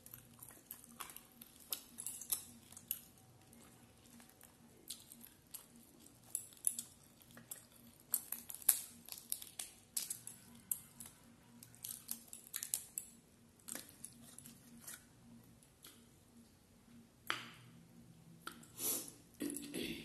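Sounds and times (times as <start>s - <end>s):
chewing: 0.0s - 15.1s.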